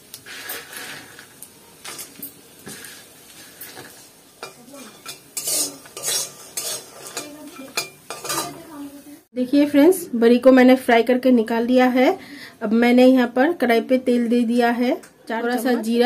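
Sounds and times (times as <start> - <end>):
dumplings sizzling in oil: 0.0 - 9.3
metal spatula scraping pan: 2.8 - 8.7.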